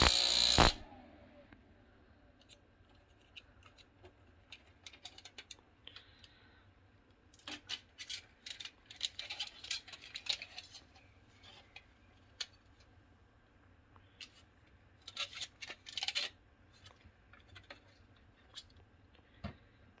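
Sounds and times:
faint low hum: 0:00.0 - 0:20.0
aluminium foil crinkling: 0:07.4 - 0:11.8, 0:15.0 - 0:18.7.

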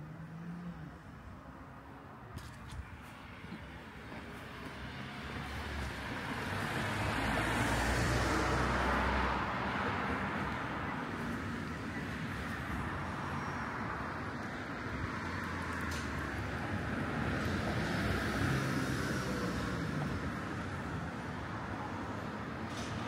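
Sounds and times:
background traffic: 0:00.0 - 0:23.0
vehicle passing: 0:03.3 - 0:12.2.

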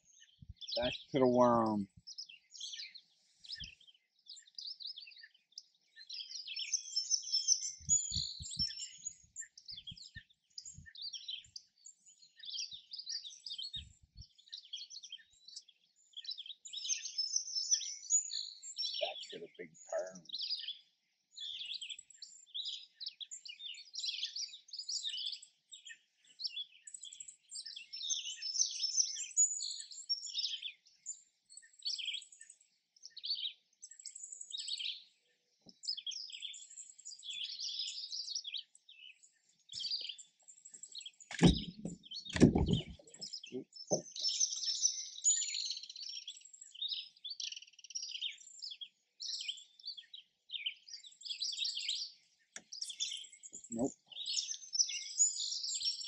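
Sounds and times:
songbirds chirping and singing: 0:00.0 - 0:56.0
low thumps and knocks: 0:41.3 - 0:43.2.

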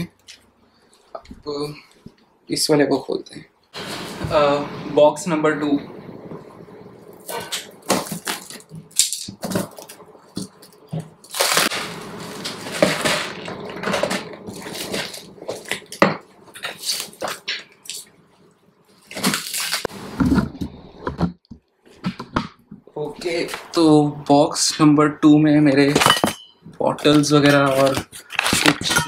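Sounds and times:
cardboard tearing and rustling: 0:07.2 - 0:16.0, 0:16.6 - 0:17.4, 0:19.0 - 0:20.5, 0:27.0 - 0:29.0
plastic wrapping crinkling: 0:07.2 - 0:18.1, 0:18.9 - 0:19.9, 0:27.0 - 0:29.0
knife slitting packing tape: 0:11.2 - 0:13.4, 0:19.1 - 0:19.9.

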